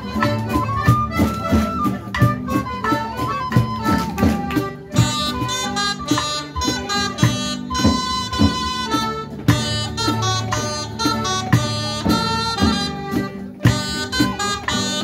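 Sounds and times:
accordion: 0.0 - 15.0
guitar: 0.0 - 15.0
steady drum beat: 0.0 - 15.0
wind instruments melody: 0.0 - 15.0.

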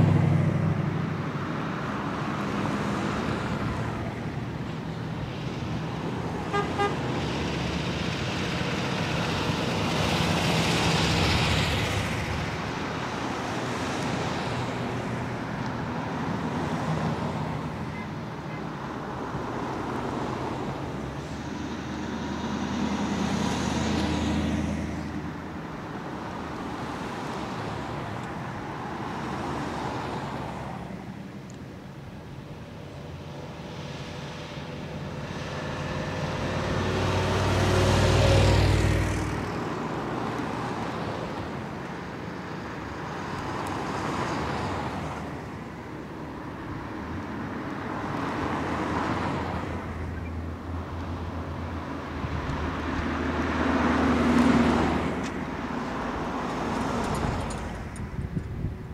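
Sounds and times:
cars driving past: 0.0 - 58.9
car horn toots: 6.5 - 7.0.

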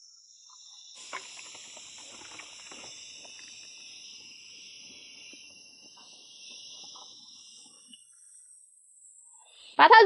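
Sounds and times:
high insect drone: 0.0 - 10.0
hands rubbing salt into fish: 1.0 - 3.6.

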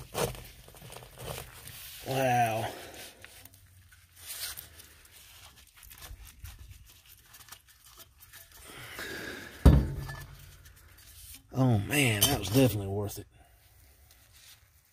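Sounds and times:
paper crinkling: 0.0 - 2.2, 2.8 - 8.6
wet paper tearing: 0.0 - 2.2, 2.8 - 8.6.

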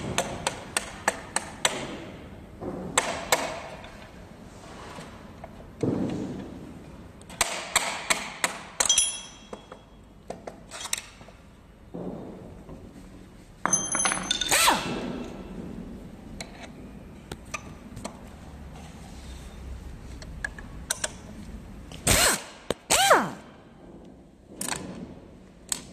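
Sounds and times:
thunk: 5.8 - 6.5, 11.9 - 12.5
metal parts knocking and clinking: 8.0 - 11.2, 13.6 - 15.5.

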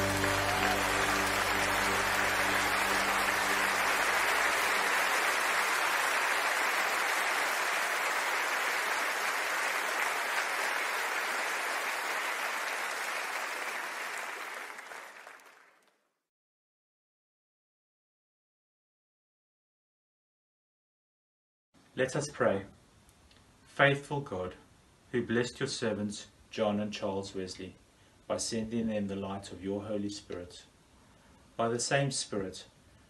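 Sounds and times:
choir holding hymn chord: 0.0 - 6.6
audience applause: 0.0 - 15.9.

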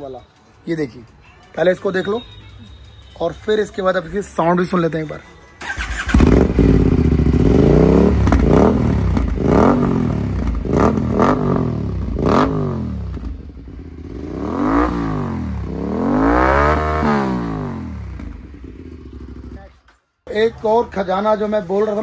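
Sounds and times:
motorcycle engine revving: 5.6 - 19.7.

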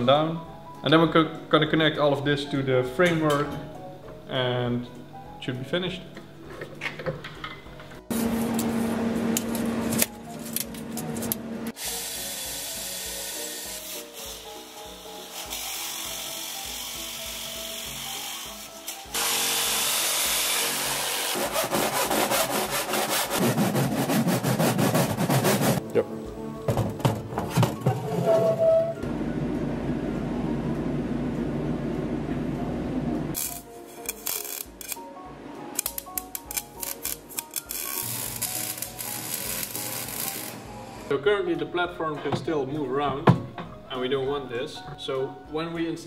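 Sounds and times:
power tool humming: 11.7 - 21.5, 36.8 - 41.1
metal cutting and drilling: 11.8 - 21.5, 36.8 - 41.1.

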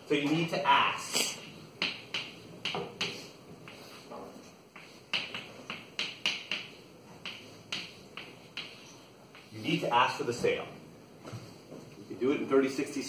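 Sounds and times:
chalk scraping on a chalkboard: 3.0 - 9.9.

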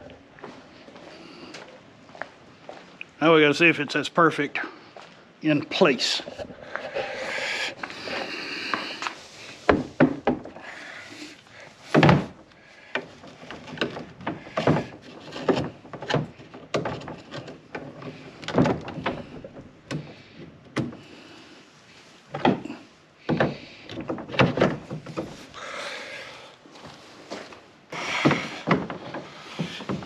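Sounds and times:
scraping and rubbing: 6.0 - 12.4
plastic pipes knocking: 6.4 - 10.8, 11.8 - 21.1, 22.3 - 25.6, 27.3 - 30.0.

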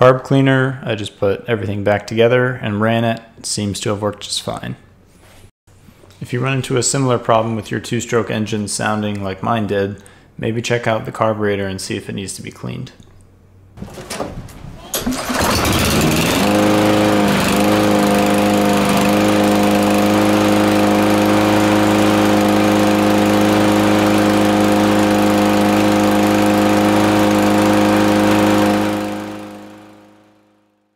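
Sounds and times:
lawn mower engine running: 15.0 - 30.4.

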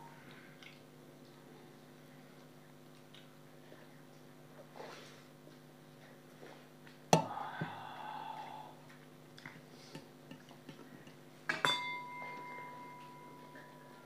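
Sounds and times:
steady ringing tone: 11.6 - 14.0.

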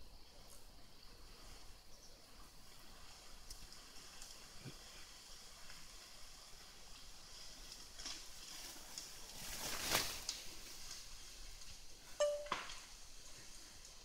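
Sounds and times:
faint outdoor background hiss: 0.0 - 14.0
brief high tone: 12.2 - 12.7.

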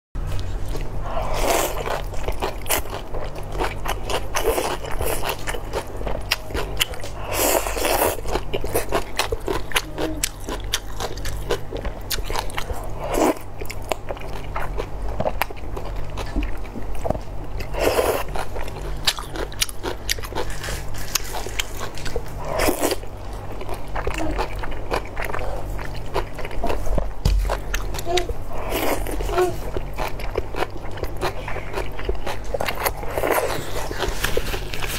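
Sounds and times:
crunching and chewing vegetables: 0.2 - 34.9
steady low hum: 0.2 - 34.9.

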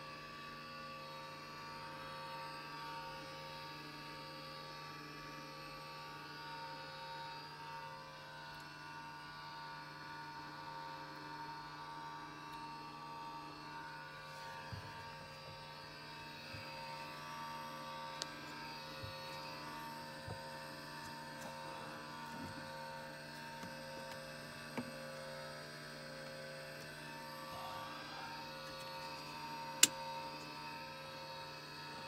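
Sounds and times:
electrical hum and whine: 0.0 - 32.0
light control clicks: 29.8 - 30.0.

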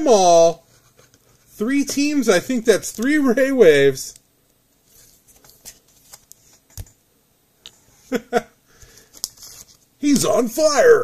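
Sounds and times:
trading cards and plastic sleeves rustling: 0.8 - 4.2, 4.8 - 7.0, 8.8 - 10.5.

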